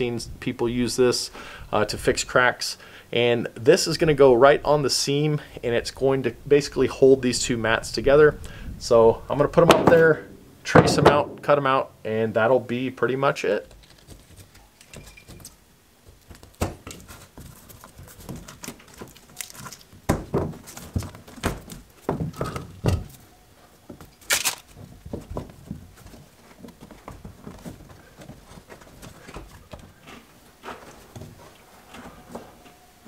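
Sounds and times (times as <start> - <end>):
thunks knocks and scrapes: 9.6 - 11.5, 20.0 - 23.2, 24.7 - 32.6.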